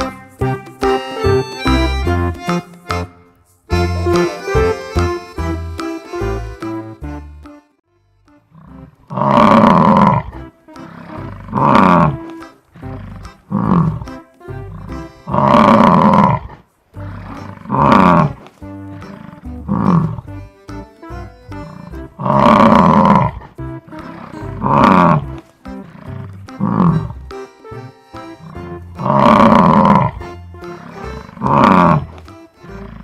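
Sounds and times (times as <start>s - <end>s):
light background music: 0.0s - 16.0s, 17.0s - 33.0s
bison bellowing: 8.5s - 20.4s, 21.6s - 27.8s, 28.5s - 33.0s.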